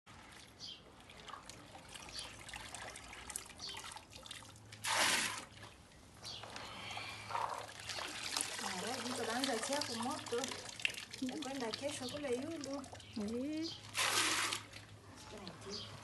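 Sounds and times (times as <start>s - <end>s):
poured water rush: 0.1s - 6.2s, 7.2s - 15.0s
water trickling and splashing: 0.1s - 16.0s
hands sloshing beans in water: 7.3s - 15.0s.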